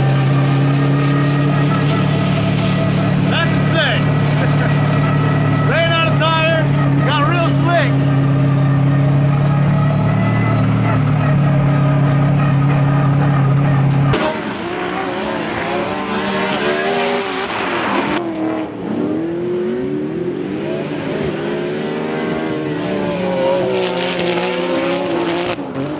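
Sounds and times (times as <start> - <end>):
tyre squeal: 0.0 - 14.1
car engine revving: 0.0 - 25.9.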